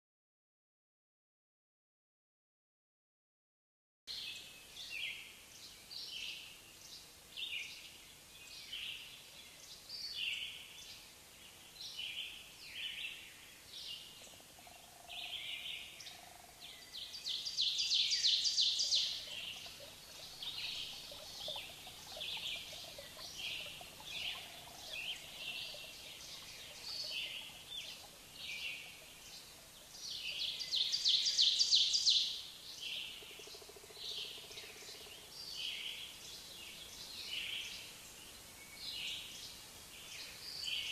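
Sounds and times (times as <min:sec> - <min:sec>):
birds chirping: 0:07.0 - 0:40.9
rapid bird trills: 0:17.8 - 0:32.1.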